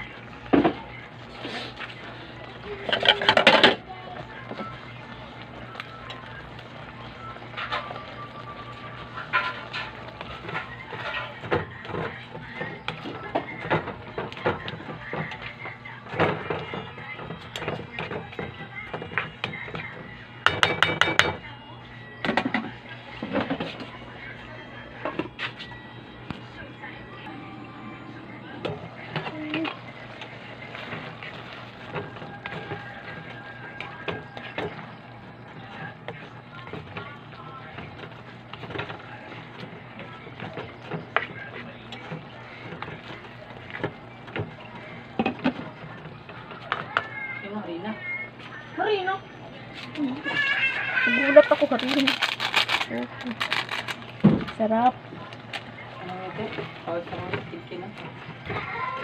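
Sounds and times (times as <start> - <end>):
spoon stirring and scraping wok: 0.0 - 21.2, 28.6 - 47.0
faint music: 0.0 - 59.0
spoon knocking against pan: 20.4 - 21.4.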